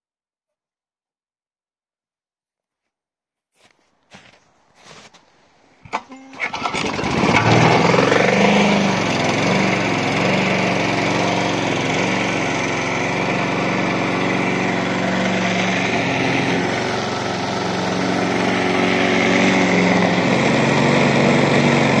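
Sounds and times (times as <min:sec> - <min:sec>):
lawn mower engine running: 0:05.9 - 0:22.0.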